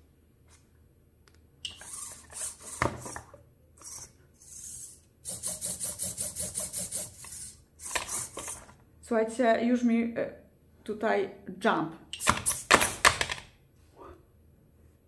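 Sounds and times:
small servo motors buzzing: 0:01.7 - 0:08.6.

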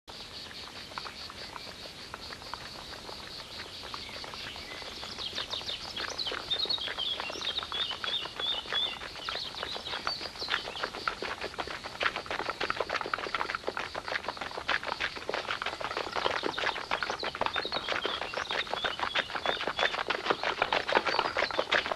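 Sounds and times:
horse hooves clopping: 0:00.1 - 0:21.9
birds chirping and trilling: 0:03.9 - 0:11.0.

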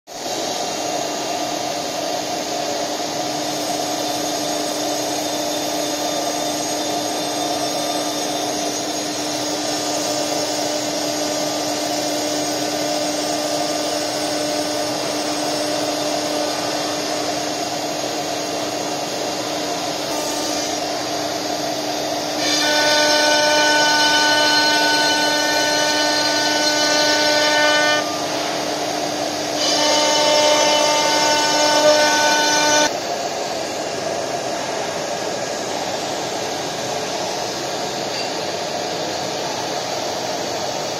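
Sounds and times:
higher multi-tone whine: 0:00.1 - 0:40.9
router spindle whining: 0:00.2 - 0:33.0.

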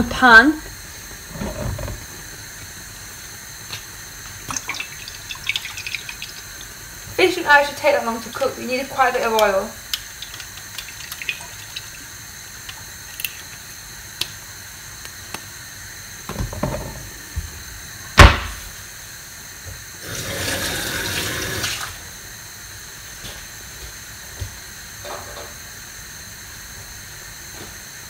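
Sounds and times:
kitchen tap running: 0:02.7 - 0:14.4, 0:20.0 - 0:22.0
loud knock: 0:18.2 - 0:18.6.

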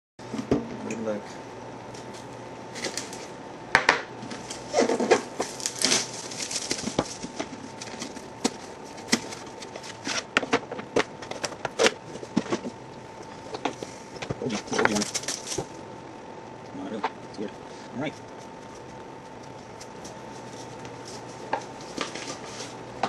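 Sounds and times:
cardboard crackling: 0:04.4 - 0:12.8, 0:14.4 - 0:15.8.

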